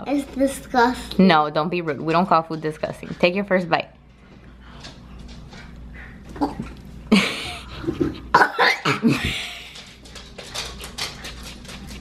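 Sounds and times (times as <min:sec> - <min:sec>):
boy coughing and gagging: 0:08.3 - 0:09.3.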